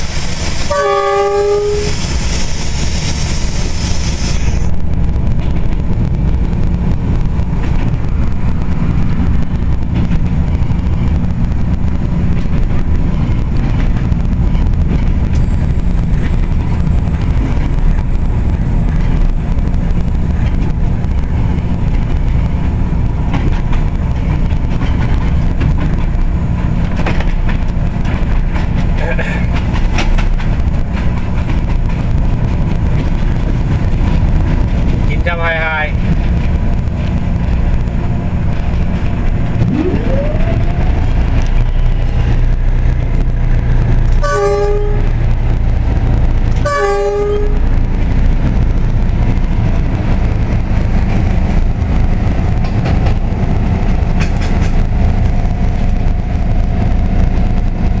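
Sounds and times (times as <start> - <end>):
hiss: 0.0 - 0.7, 1.5 - 4.7
diesel locomotive engine drone: 0.0 - 58.0
locomotive horn blast: 0.6 - 2.0, 44.2 - 45.2, 46.6 - 47.7.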